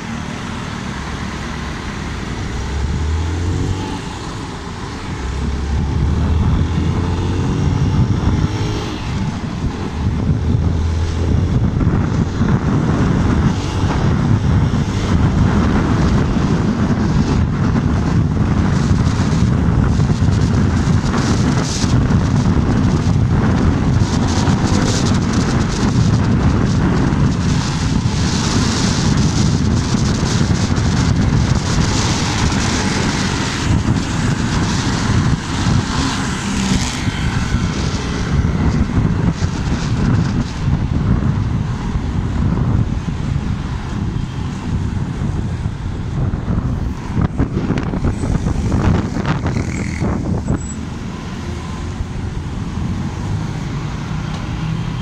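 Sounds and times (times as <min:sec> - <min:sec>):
motorcycle engine: 0:00.0 - 0:55.0
wind buffeting microphone: 0:00.0 - 0:55.0.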